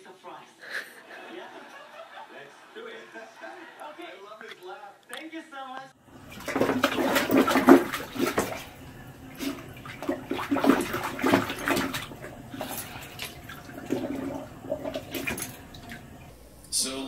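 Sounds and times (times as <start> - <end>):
water splashing in toilet bowl: 6.0 - 16.7.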